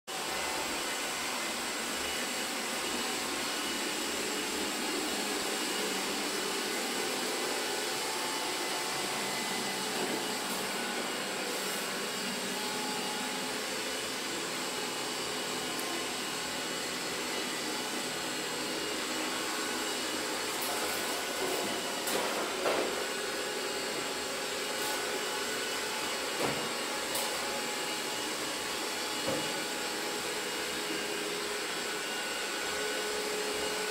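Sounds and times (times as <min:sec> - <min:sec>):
robot vacuum running: 0:00.1 - 0:33.9
vacuum knocking on chair legs: 0:29.2 - 0:29.6.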